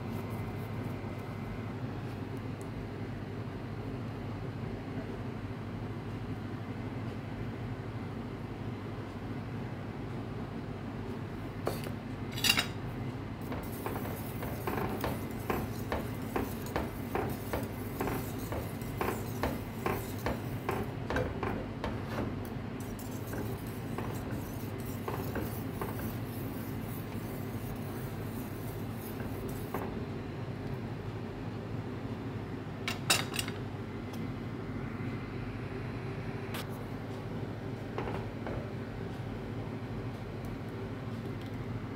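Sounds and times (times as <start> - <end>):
steady low hum: 0.0 - 41.9
whisk clicking against metal pot: 13.4 - 29.9.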